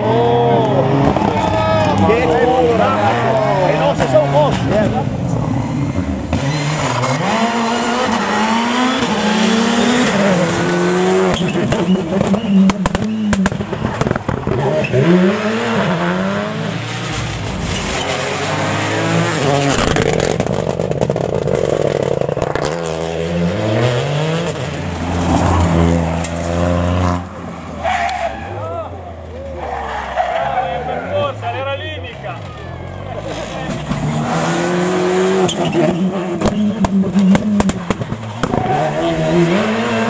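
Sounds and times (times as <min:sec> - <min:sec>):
rally car engines revving: 0:00.0 - 0:40.0
sharp cracks: 0:36.4 - 0:38.7.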